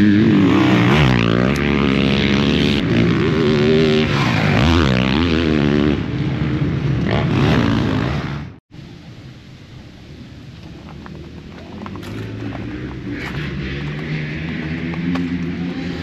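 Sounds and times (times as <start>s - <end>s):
motorcycle engine revving: 0.0s - 8.6s, 11.9s - 16.0s.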